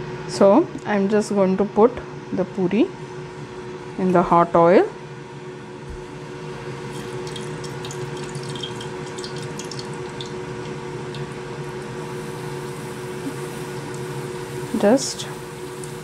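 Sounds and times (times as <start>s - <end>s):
steady low hum: 0.0s - 16.0s
oil sizzling and bubbling: 5.8s - 16.0s
oil crackles: 6.8s - 12.1s.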